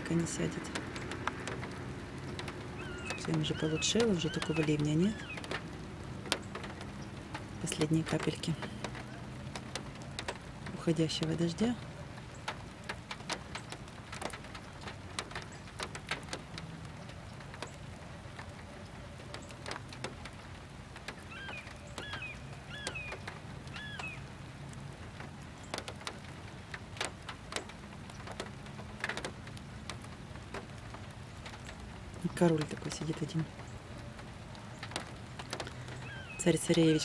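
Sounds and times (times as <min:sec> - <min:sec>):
raindrops tapping: 0:00.0 - 0:37.0
bird calls: 0:02.2 - 0:10.4, 0:17.0 - 0:24.4, 0:31.3 - 0:37.0.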